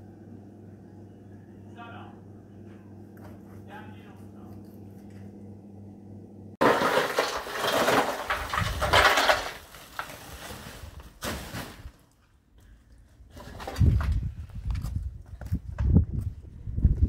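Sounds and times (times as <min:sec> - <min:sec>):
low hum: 0:00.0 - 0:06.6
hard objects clattering: 0:06.6 - 0:11.6.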